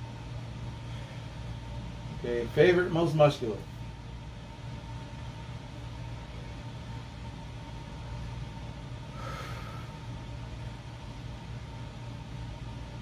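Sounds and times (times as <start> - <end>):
air conditioner humming: 0.0 - 13.0
forceful exhale: 9.1 - 10.0.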